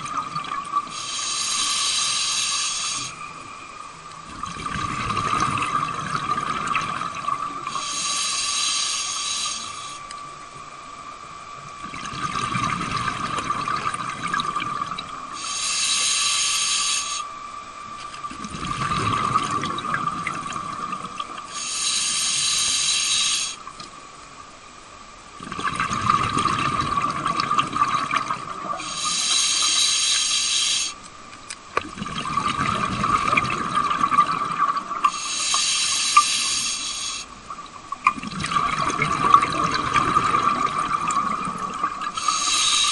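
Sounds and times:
exhaled bubbles rumbling: 0.0s - 0.9s, 4.1s - 7.9s, 11.6s - 15.4s, 18.1s - 21.5s, 25.4s - 29.0s, 31.8s - 35.2s, 37.4s - 42.4s
steady high hum: 0.0s - 42.9s
regulator hissing inhale: 0.8s - 3.4s, 7.7s - 10.1s, 15.3s - 17.3s, 21.5s - 23.7s, 28.8s - 31.0s, 35.0s - 37.4s, 42.1s - 42.9s.

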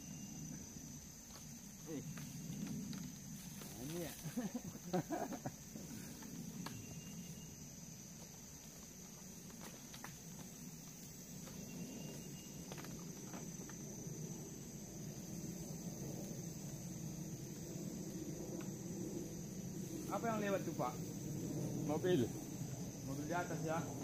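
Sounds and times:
high insect drone: 0.0s - 24.0s
aircraft passing overhead: 13.9s - 24.0s.

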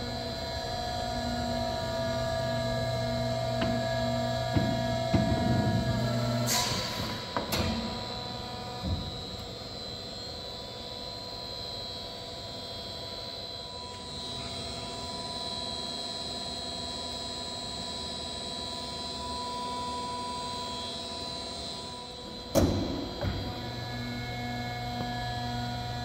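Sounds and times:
press brake machine hum: 0.1s - 10.5s.

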